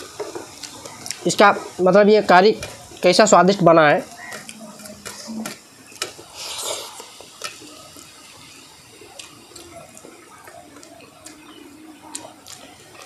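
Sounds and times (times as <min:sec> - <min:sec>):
hands squishing wet food: 0:09.1 - 0:13.0.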